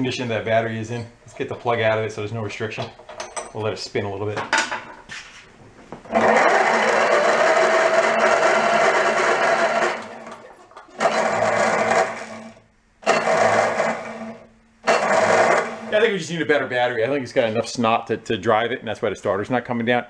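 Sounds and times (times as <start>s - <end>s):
electric starter motor whirring: 6.1s - 10.4s, 11.0s - 15.9s.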